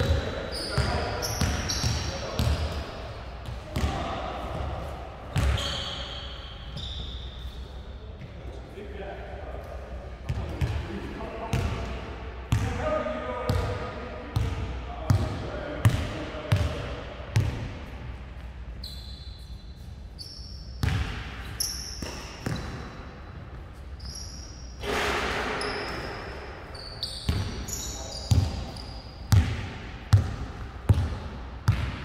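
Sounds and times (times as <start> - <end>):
basketball bouncing on gym floor: 0.0 - 2.8, 5.3 - 5.8, 20.8 - 21.4, 22.0 - 23.0, 27.2 - 27.6, 28.2 - 32.0
sneakers squeaking on court: 0.0 - 8.3, 18.8 - 32.0.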